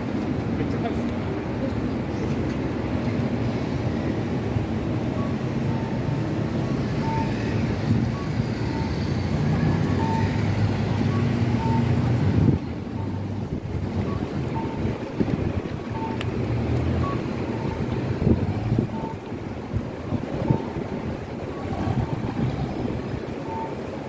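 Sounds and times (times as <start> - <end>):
traffic and crowd hum: 0.0 - 24.0
short electronic beeps: 7.0 - 9.2, 9.8 - 12.0, 14.0 - 14.9, 15.8 - 16.2, 23.1 - 23.8.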